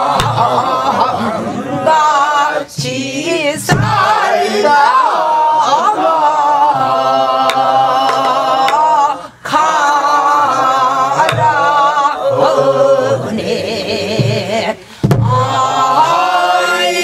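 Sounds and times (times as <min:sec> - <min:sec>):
group singing together: 0:00.0 - 0:17.0
barrel drum strokes: 0:00.1 - 0:00.6, 0:03.6 - 0:05.0, 0:11.2 - 0:13.0, 0:14.1 - 0:16.1
woman singing folk song: 0:01.9 - 0:04.0.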